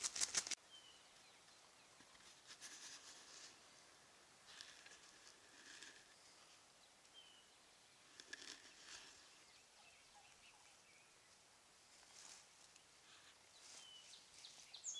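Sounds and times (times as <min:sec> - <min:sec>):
rustling leaves and twigs: 0:00.0 - 0:14.9
high bird chirp: 0:13.6 - 0:14.9.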